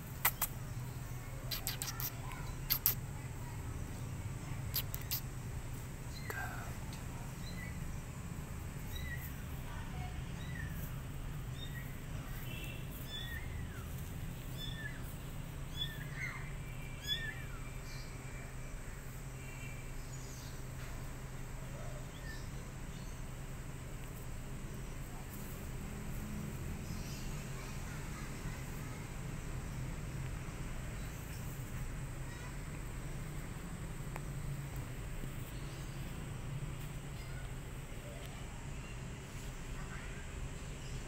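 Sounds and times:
steady low hum: 0.0s - 41.0s
kittens mewing: 1.5s - 3.0s.

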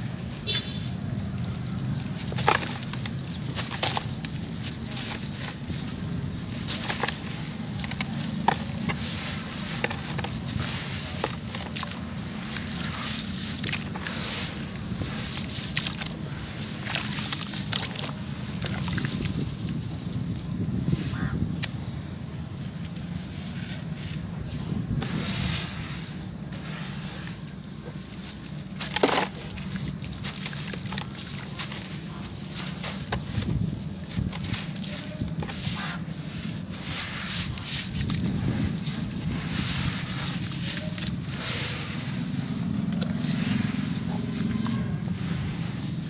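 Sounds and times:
hands stirring wet cement: 0.0s - 46.0s
wet block crumbling: 1.6s - 14.2s, 27.8s - 36.7s
water sloshing: 25.1s - 46.0s.

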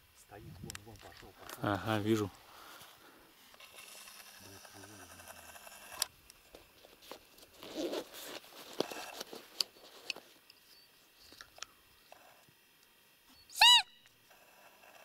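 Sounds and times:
rustling and crackling: 0.5s - 11.6s.

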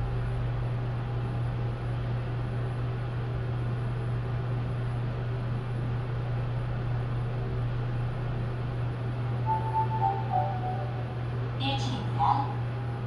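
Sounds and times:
elevator hum and hiss: 9.3s - 13.0s.

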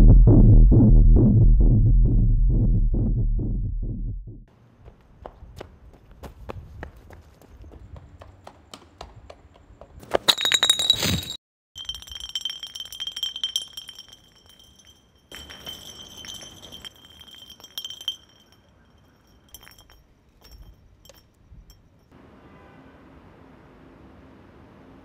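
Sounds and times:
glass bottle rolling on pavement: 10.2s - 22.1s
bottle clinks: 10.3s - 22.1s.

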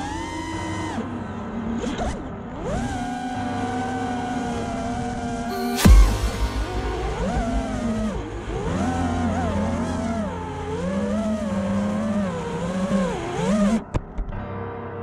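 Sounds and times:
drone motors whining: 0.0s - 14.0s
sharp knock: 5.6s - 8.8s.

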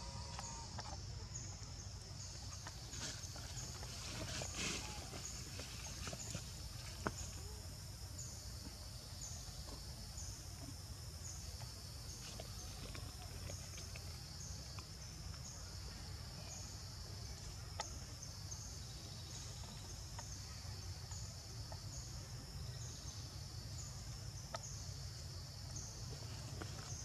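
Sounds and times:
insect chorus pulsing buzz: 0.0s - 27.0s.

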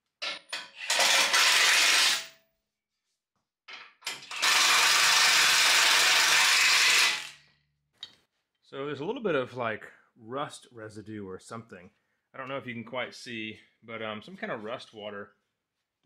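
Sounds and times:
cordless impact wrench: 0.7s - 2.3s, 4.0s - 7.4s.

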